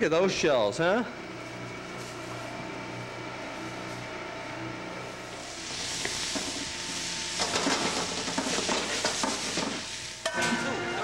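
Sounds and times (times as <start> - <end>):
vegetables sizzling in a pan: 5.2 - 11.0
utensil scraping a pan: 7.4 - 10.6.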